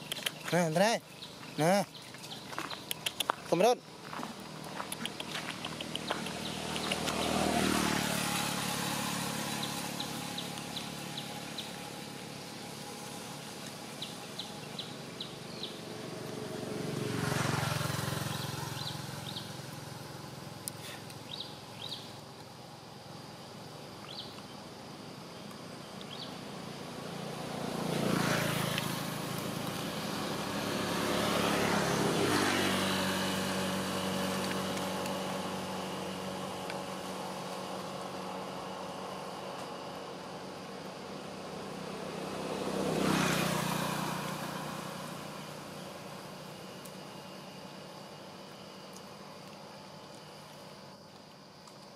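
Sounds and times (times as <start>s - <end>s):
faint short clicks: 0.0s - 0.5s
motorbikes passing: 0.0s - 49.5s
outdoor background noise: 0.0s - 51.9s.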